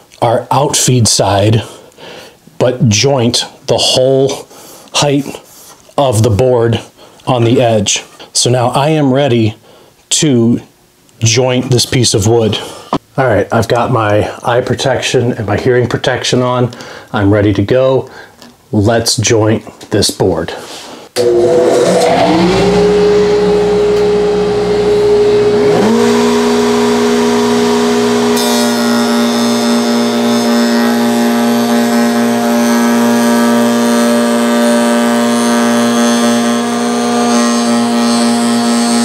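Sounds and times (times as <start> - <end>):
hissing wood cutting: 21.2 - 39.0
motor lower whine: 21.2 - 39.0
router high whine: 21.2 - 39.0.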